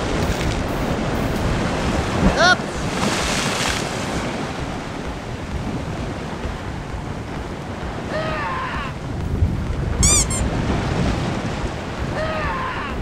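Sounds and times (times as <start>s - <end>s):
waves washing against rocks: 0.0s - 13.0s
wind buffeting microphone: 0.0s - 13.0s
short call falling in pitch: 10.0s - 10.4s.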